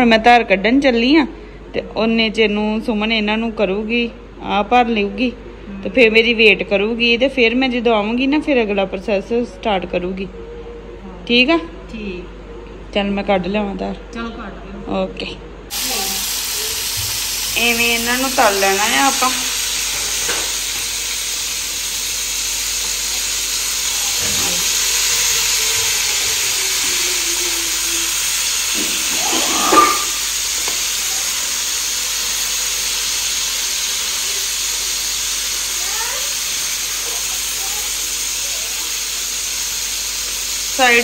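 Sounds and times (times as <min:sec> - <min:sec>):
vegetables sizzling in oil: 0:15.7 - 0:41.0.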